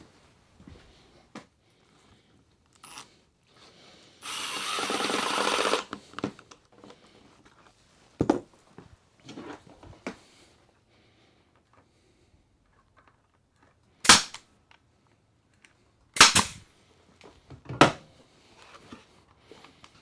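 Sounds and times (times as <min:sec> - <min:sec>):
cordless drill driving screw into wood: 0:02.8 - 0:03.1, 0:04.2 - 0:06.1.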